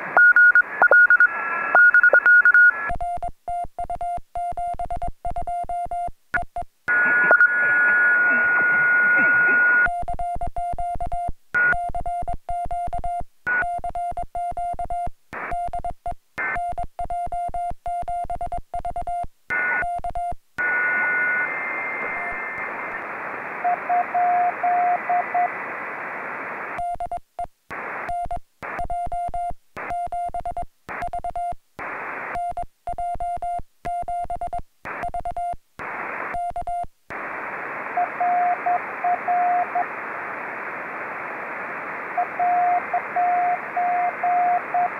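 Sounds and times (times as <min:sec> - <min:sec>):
radio receiver hiss: 0:00.0 - 0:02.9, 0:06.9 - 0:09.9, 0:15.3 - 0:15.5, 0:20.6 - 0:26.8, 0:27.7 - 0:28.9, 0:31.8 - 0:32.4, 0:34.8 - 0:35.1, 0:35.8 - 0:36.5, 0:37.1 - 0:44.9
morse code sidetone: 0:00.2 - 0:03.2, 0:06.9 - 0:22.6, 0:23.6 - 0:25.5, 0:38.0 - 0:39.8, 0:42.2 - 0:44.9.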